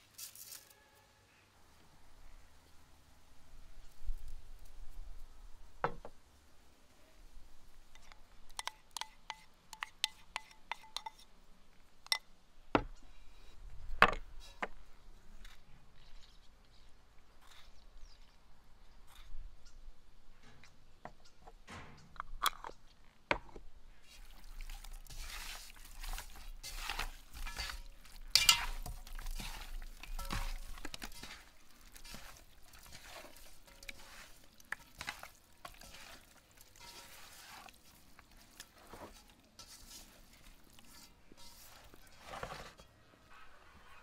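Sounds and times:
wet squelching and slapping: 0:24.1 - 0:38.7.

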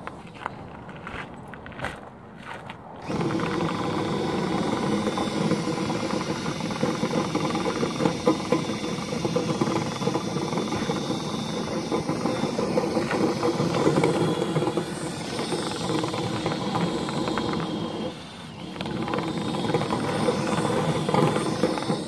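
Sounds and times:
cordless drill spinning: 0:03.0 - 0:22.0.

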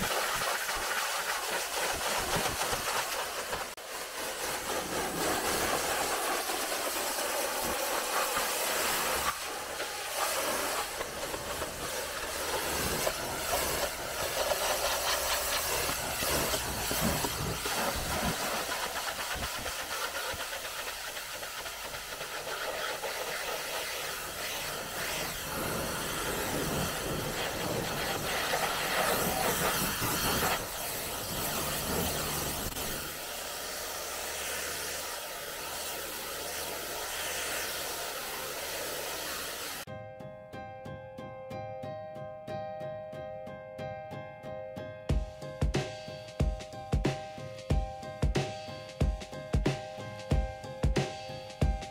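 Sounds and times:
pressure washer spraying water: 0:00.0 - 0:39.9.

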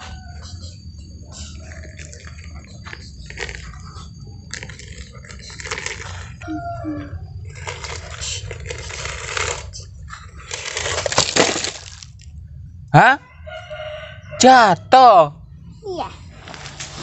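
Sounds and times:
toy excavator scraping sand: 0:07.6 - 0:09.8.

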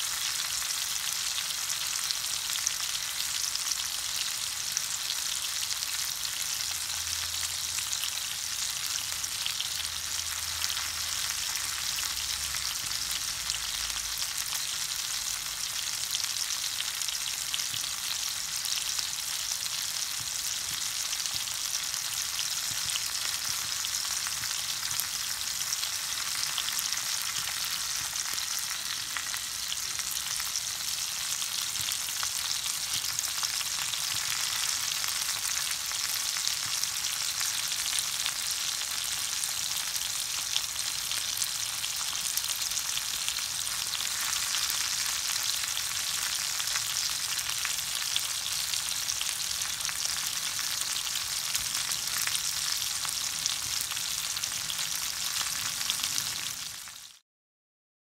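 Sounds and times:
fish frying in hot oil: 0:00.0 - 0:57.2.

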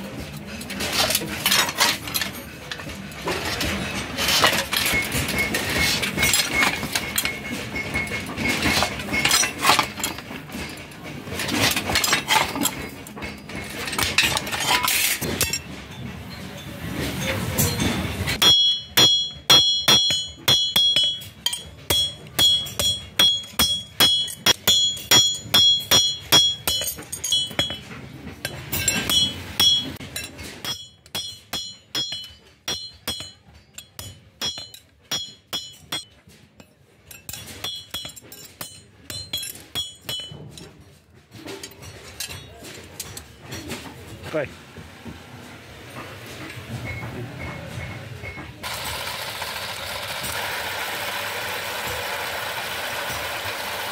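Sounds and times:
hammer striking steel: 0:17.2 - 0:40.8
shear cutting sheet steel: 0:48.6 - 0:53.9.

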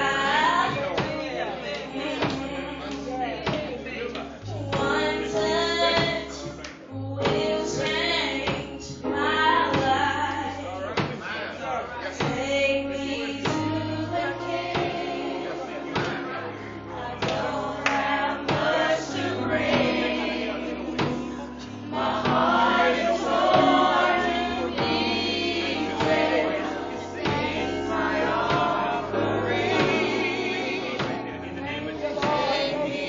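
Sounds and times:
low bass notes: 0:00.0 - 0:11.2
gospel choir singing: 0:00.0 - 0:33.0.

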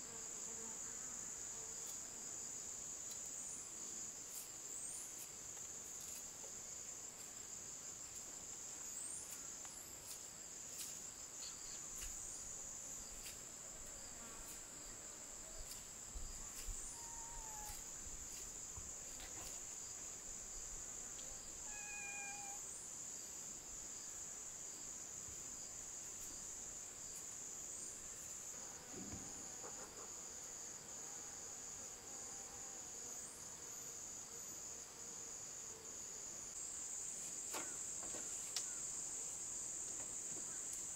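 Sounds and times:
high-pitched insect chorus: 0:14.0 - 0:30.8.

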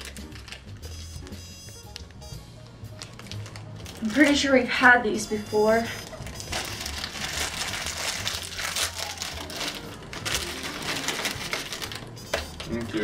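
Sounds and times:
plastic packet crinkling: 0:00.0 - 0:00.9, 0:02.9 - 0:04.4, 0:06.0 - 0:13.0.

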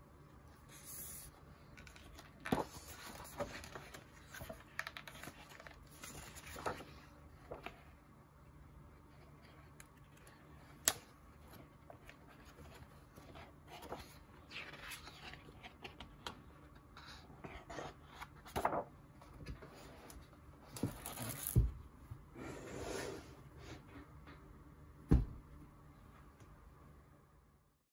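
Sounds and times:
book pages turning: 0:00.6 - 0:07.9, 0:09.2 - 0:20.2
dull thump: 0:25.1 - 0:25.4.

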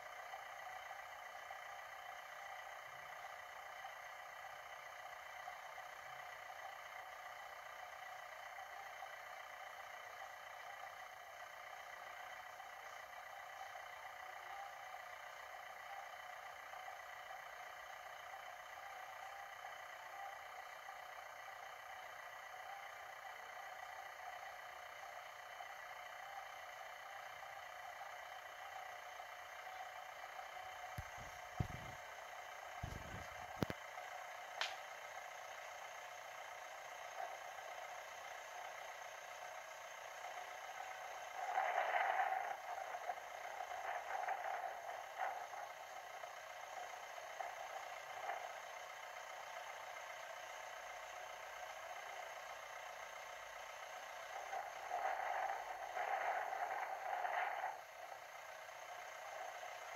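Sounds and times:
electronic hiss with whining tones: 0:30.9 - 0:32.0, 0:32.8 - 0:33.8.

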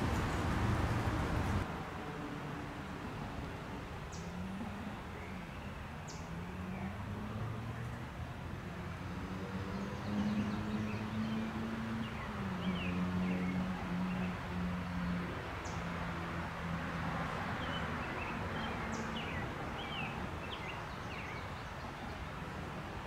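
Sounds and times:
low engine hum: 0:00.0 - 0:02.2
small birds chirping: 0:17.6 - 0:22.3.

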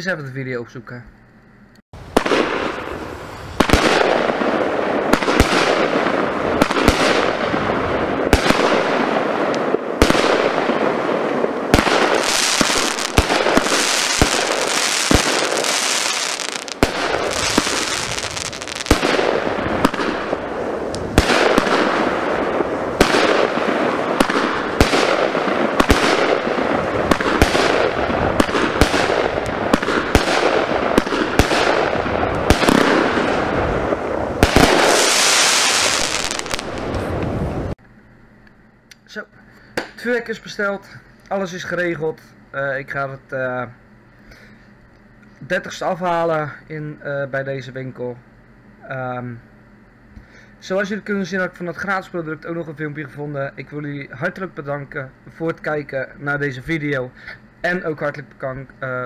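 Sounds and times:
fireworks crackling and hissing: 0:02.0 - 0:37.8, 0:39.1 - 0:42.3
fireworks shots firing: 0:02.0 - 0:37.8.

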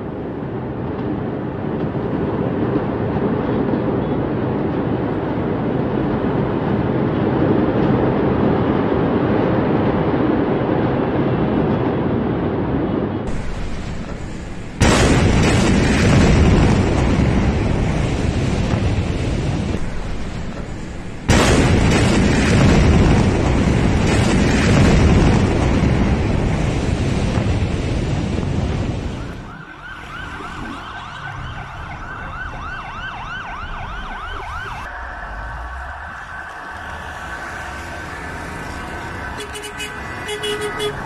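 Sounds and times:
explosion blasts: 0:00.0 - 0:32.7
emergency vehicle sirens: 0:00.0 - 0:41.0
rumbling roar: 0:33.8 - 0:39.4.

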